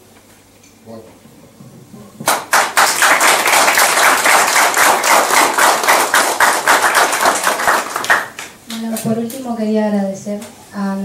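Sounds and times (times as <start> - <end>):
crowd applauding: 2.2 - 8.6.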